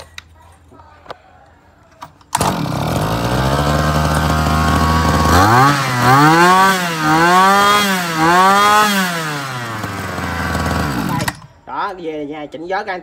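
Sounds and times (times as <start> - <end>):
brush-cutter engine revving: 2.3 - 11.5.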